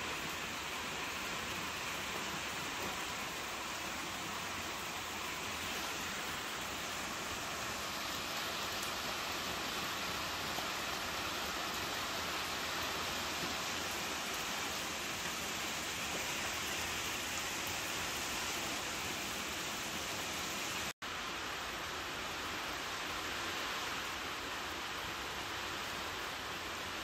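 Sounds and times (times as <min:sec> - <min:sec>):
rain on wet paving: 0:00.0 - 0:27.0.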